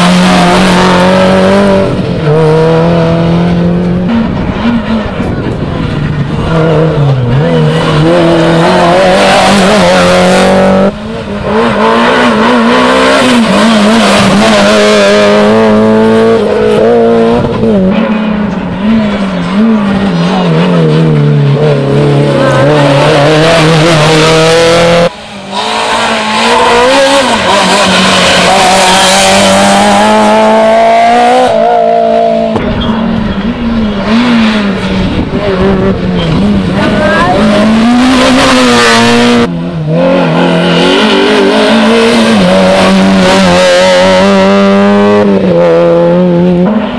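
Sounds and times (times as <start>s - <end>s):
rally car engines revving hard: 0.0s - 46.9s.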